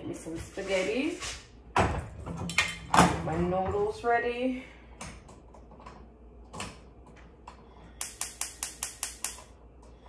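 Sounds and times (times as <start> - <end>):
stove igniter clicking rapidly: 8.0 - 9.4.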